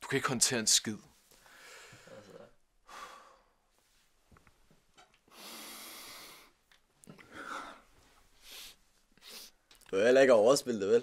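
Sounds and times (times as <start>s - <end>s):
person breathing: 1.3s - 3.7s, 5.3s - 9.6s
person sniffing: 8.4s - 9.6s.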